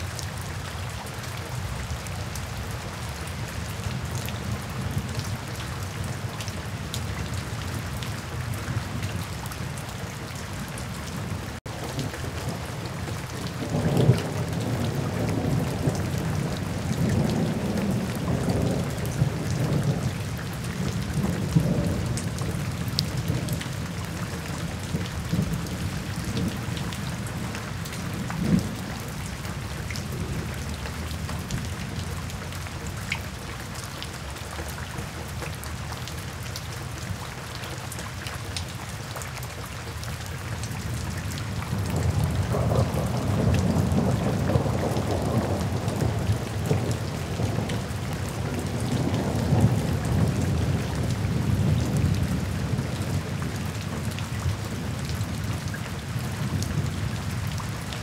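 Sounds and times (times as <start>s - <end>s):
rain pattering: 0.0s - 58.0s
rolling thunder: 41.7s - 53.2s.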